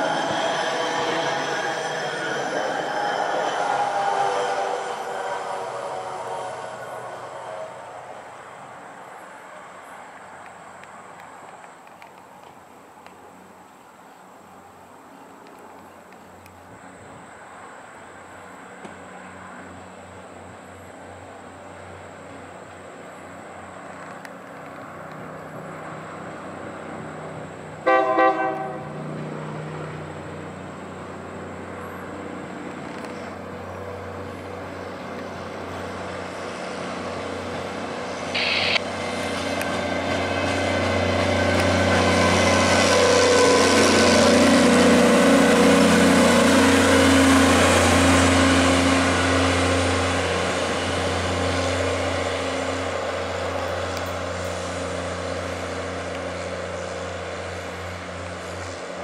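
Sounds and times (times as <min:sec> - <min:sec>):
diesel drone: 0:00.0 - 0:09.2, 0:23.2 - 0:59.0
wheel and rail rumble: 0:00.0 - 0:59.0
horn toot: 0:27.8 - 0:28.9
high-pitched burst: 0:38.3 - 0:38.9.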